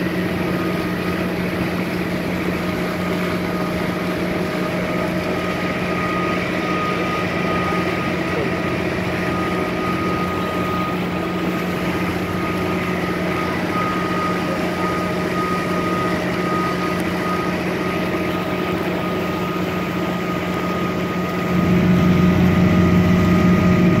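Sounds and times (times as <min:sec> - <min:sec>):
boat engine humming: 0:00.0 - 0:24.0.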